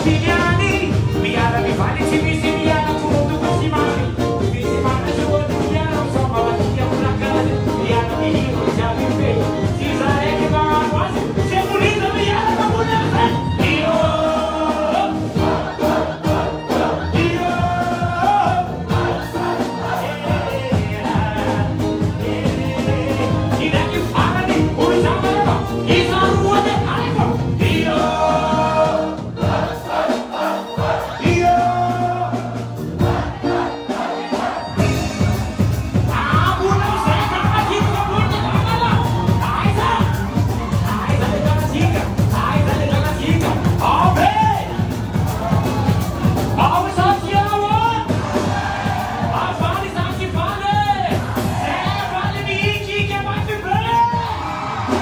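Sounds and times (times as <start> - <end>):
man singing into a microphone: 0.0 - 15.2, 19.8 - 28.9, 36.1 - 44.7
crowd singing along: 0.0 - 53.3, 54.1 - 55.0
live music over speakers: 0.0 - 55.0
steady drum beat: 0.0 - 55.0.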